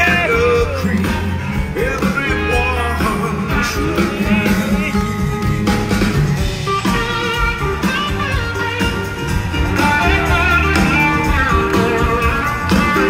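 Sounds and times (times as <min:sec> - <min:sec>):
bass: 0:00.0 - 0:13.0
drums: 0:00.0 - 0:13.0
electric guitar lead: 0:00.0 - 0:13.0.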